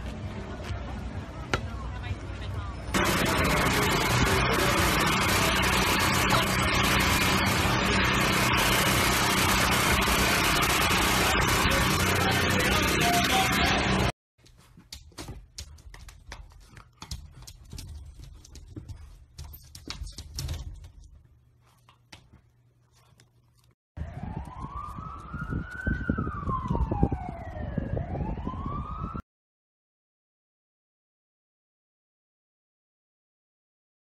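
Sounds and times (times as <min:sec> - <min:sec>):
siren-like wail: 0:03.0 - 0:14.1, 0:24.0 - 0:29.2
paws tapping on a mirror: 0:14.5 - 0:21.2.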